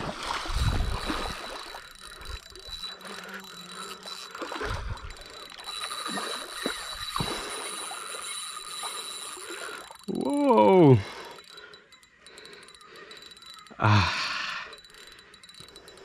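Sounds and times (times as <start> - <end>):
small water splashes: 0.0 - 3.4, 4.3 - 10.1
fishing reel being cranked: 0.2 - 16.0.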